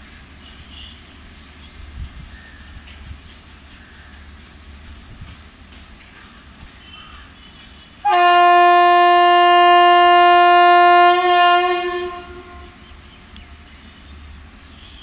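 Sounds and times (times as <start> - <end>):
locomotive horn blast: 8.0 - 12.9.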